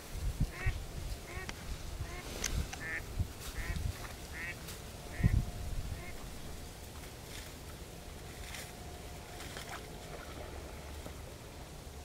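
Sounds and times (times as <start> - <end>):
waterfowl nasal calls: 0.5 - 3.0, 3.6 - 6.3.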